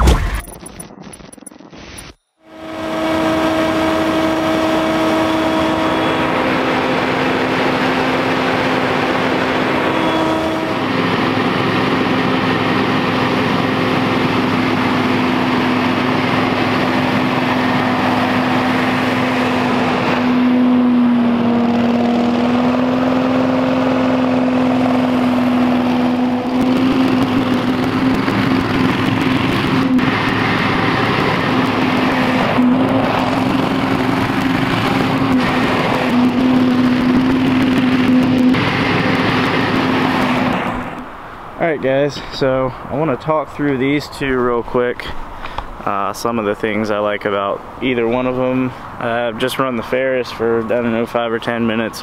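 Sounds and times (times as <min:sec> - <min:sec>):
leaf blower engine running: 0:02.5 - 0:41.2.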